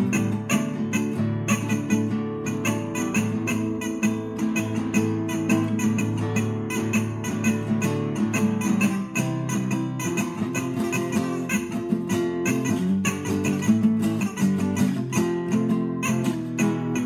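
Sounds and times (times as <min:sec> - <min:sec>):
acoustic guitar picking: 0:00.0 - 0:17.0.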